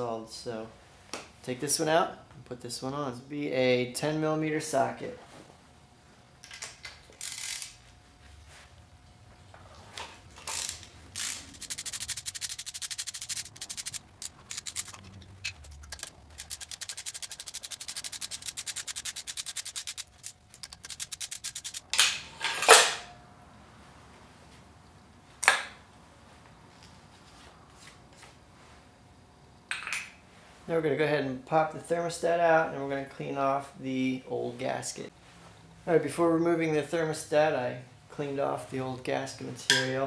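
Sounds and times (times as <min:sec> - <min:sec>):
ratchet wrench clicking: 0:07.2 - 0:07.8, 0:10.4 - 0:21.9.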